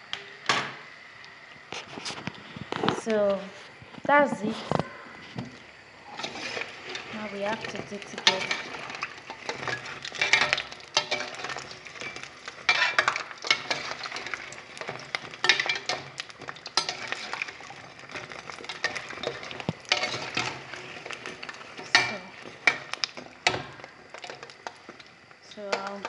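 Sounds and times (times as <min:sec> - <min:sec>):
dough deep-frying in oil: 0:00.0 - 0:26.0
metal spoon scraping pot: 0:06.1 - 0:23.7.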